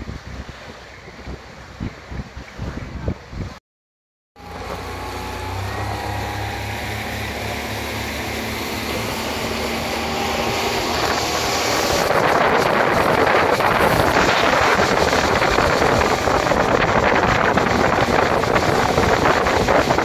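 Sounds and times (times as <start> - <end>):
wind on microphone: 0.0 - 3.6, 4.6 - 20.0
speedboat engine running: 4.4 - 20.0.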